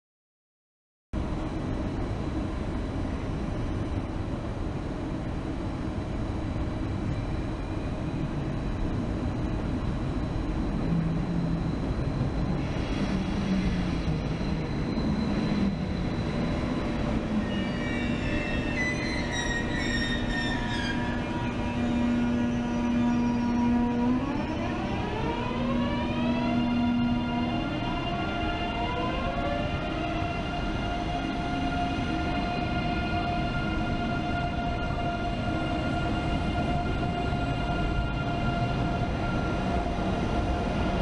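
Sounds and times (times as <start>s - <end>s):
train rolling rumble: 1.2s - 41.0s
high brake squeal: 12.5s - 24.0s.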